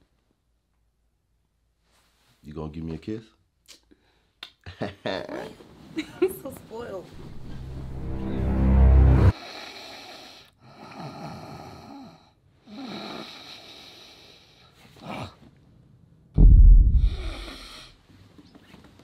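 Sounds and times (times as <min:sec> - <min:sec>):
person snoring: 0:09.3 - 0:15.4, 0:16.9 - 0:18.0.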